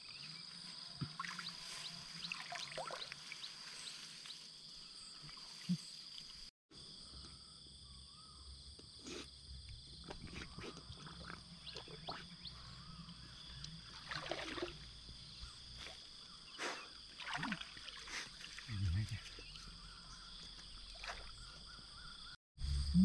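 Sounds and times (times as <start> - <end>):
man wading in water: 13.8 - 14.9, 17.1 - 18.7.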